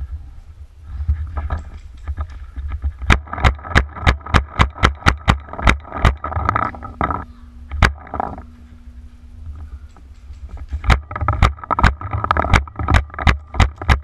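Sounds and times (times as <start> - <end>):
microphone handling noise: 0.8 - 14.0.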